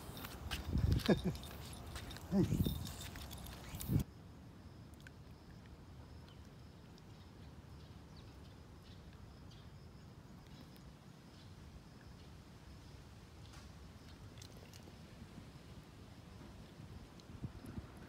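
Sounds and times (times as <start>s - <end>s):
faint high chirps and ticks: 0.0s - 15.1s.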